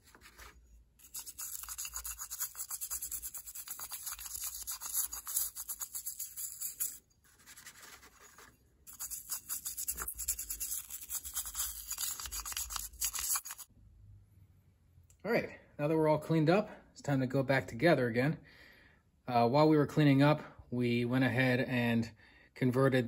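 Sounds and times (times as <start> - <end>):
toothbrush scrubbing metal housing: 0.0 - 13.7.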